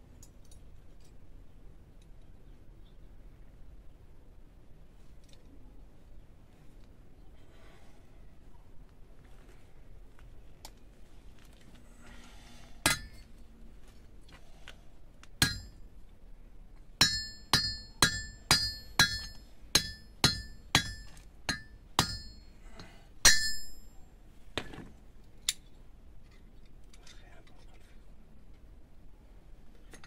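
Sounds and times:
hammer striking metal: 0:12.8 - 0:13.2, 0:15.4 - 0:15.8, 0:17.0 - 0:22.5, 0:23.2 - 0:24.0.

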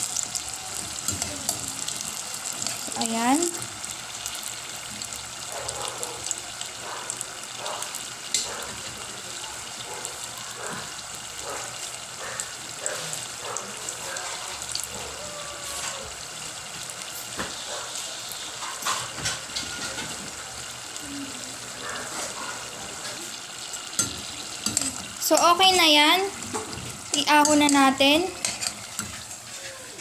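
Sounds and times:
food deep-frying in oil: 0:00.0 - 0:30.0.

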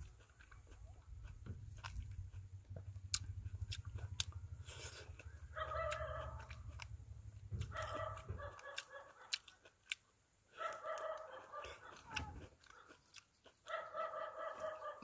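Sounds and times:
mandarin being peeled and eaten: 0:00.0 - 0:13.8
dog calling: 0:05.1 - 0:06.9, 0:07.6 - 0:09.7, 0:10.5 - 0:13.0, 0:13.6 - 0:15.0.

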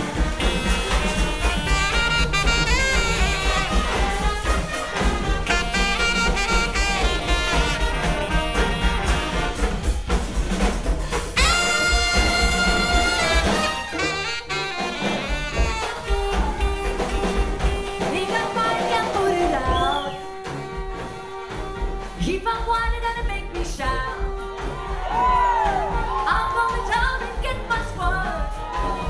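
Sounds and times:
brass band playing jazz: 0:00.0 - 0:29.0
horn holding long high note: 0:11.4 - 0:22.2.

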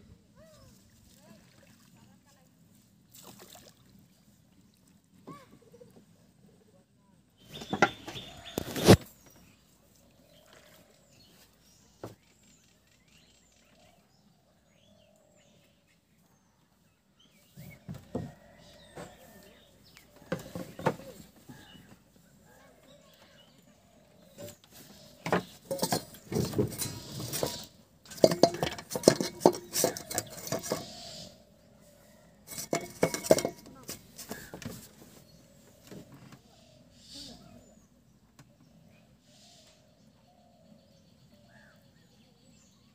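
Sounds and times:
steel bowl clinking: 0:25.6 - 0:31.0, 0:32.5 - 0:34.3
faint bird chirps: 0:36.4 - 0:42.9.

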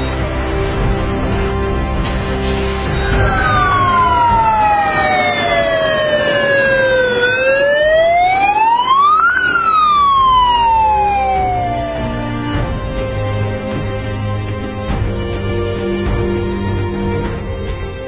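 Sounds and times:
fire engine siren wailing: 0:02.7 - 0:13.1.

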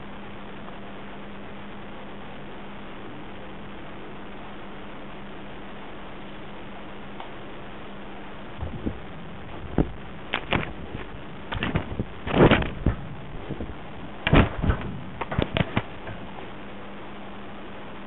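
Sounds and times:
camera hiss and low hum: 0:00.0 - 0:18.0
camera knocking and scraping: 0:09.8 - 0:13.6, 0:14.2 - 0:15.9.

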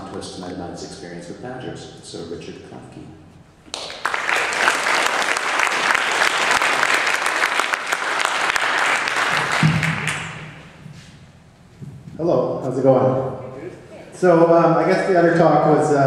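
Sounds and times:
audience applauding: 0:03.7 - 0:10.6.

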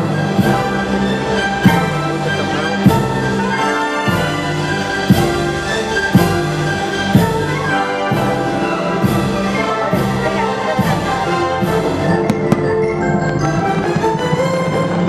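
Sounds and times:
orchestral music with brass: 0:00.0 - 0:15.0
fireworks popping: 0:12.1 - 0:15.0.

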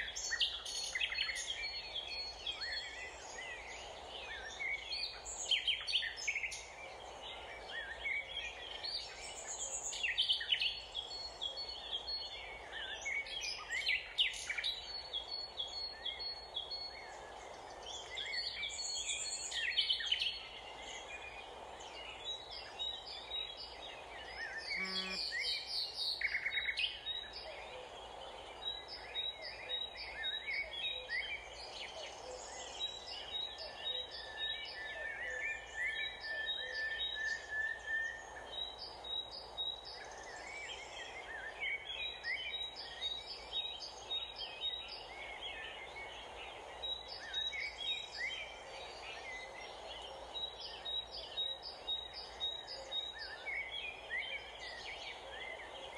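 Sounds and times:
birds chirping: 0:24.7 - 0:25.5
short high bird notes: 0:24.8 - 0:25.2.

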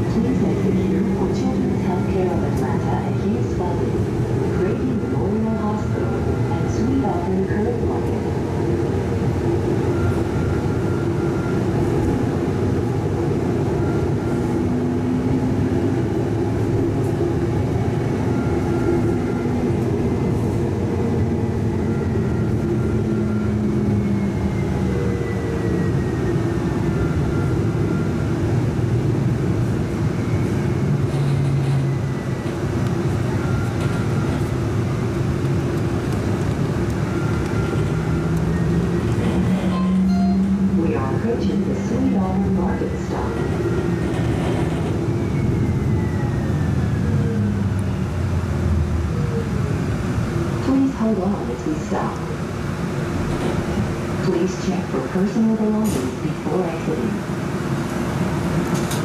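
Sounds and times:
streetcar wheels rumbling on rails: 0:00.0 - 0:59.0.

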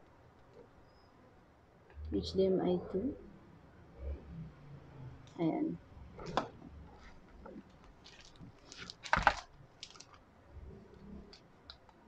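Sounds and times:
plastic bag crinkling: 0:07.0 - 0:10.2.

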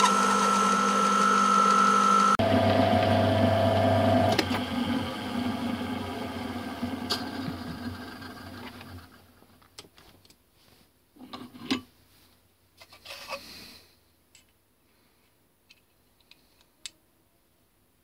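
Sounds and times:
lathe motor running down: 0:00.0 - 0:09.2.

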